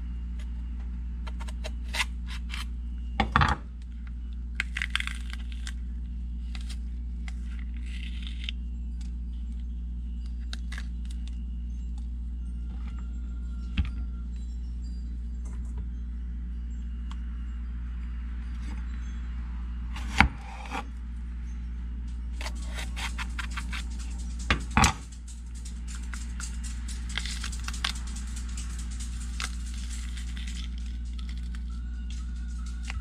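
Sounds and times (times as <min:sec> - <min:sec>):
steady low hum: 0:00.0 - 0:33.0
peppers clicking and rubbing: 0:22.3 - 0:33.0.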